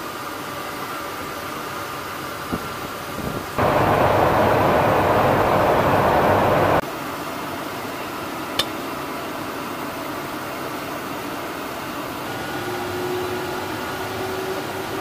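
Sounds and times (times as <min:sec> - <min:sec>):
air rush and engine hum: 0:03.6 - 0:06.8, 0:11.9 - 0:15.0.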